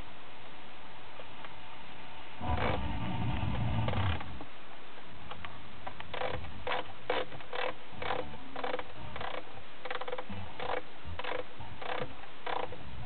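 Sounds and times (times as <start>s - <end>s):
radio tuning bursts: 2.4s - 4.4s.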